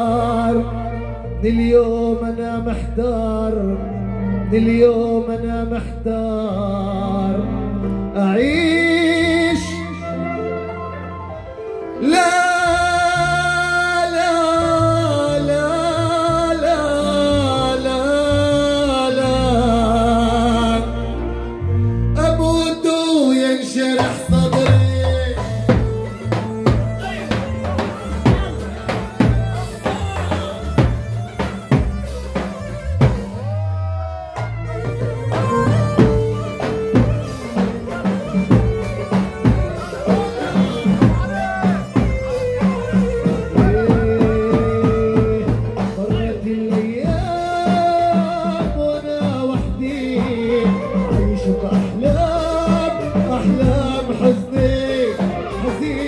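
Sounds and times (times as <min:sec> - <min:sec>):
man singing into a microphone: 0:00.0 - 0:31.4, 0:33.5 - 0:56.0
deep bass line and melody: 0:00.0 - 0:56.0
band playing dance music: 0:21.9 - 0:56.0
drum beating loudly: 0:23.9 - 0:56.0.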